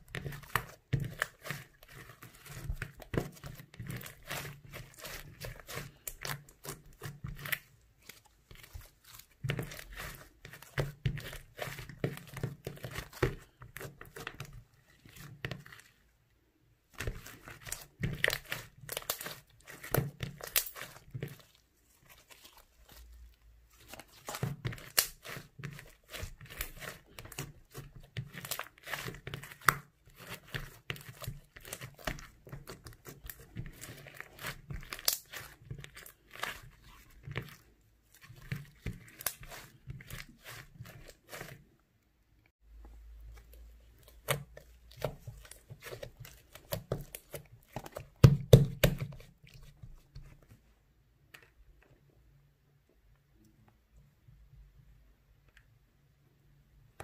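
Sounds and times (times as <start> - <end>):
slime crackling and popping: 17.0 - 21.4, 23.8 - 37.5, 44.0 - 49.8.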